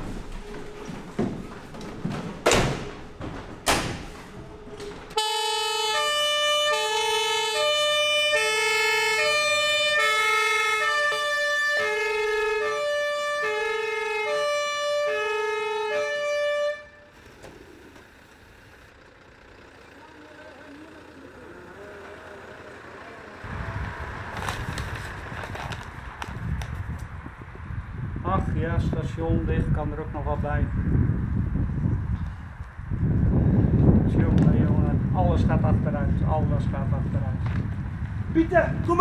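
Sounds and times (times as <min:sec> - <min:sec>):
fire engine two-tone siren: 0:04.5 - 0:17.2.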